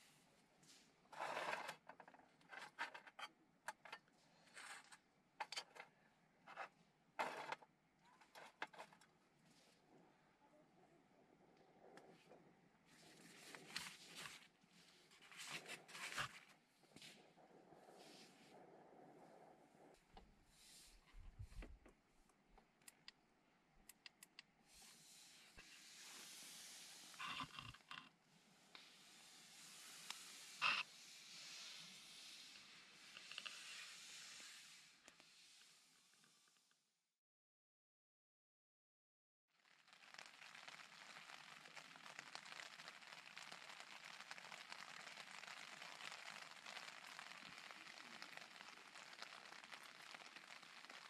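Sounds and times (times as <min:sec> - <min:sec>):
faint steady hiss: 0:08.0 - 0:36.8.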